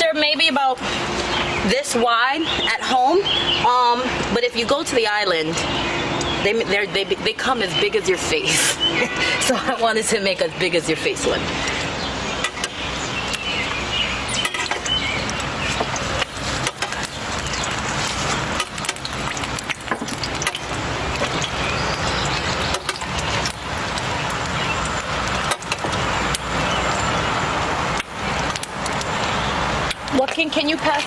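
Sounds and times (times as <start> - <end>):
ladle working in oil: 0.7 - 31.0
fritter sizzling in hot oil: 11.6 - 30.0.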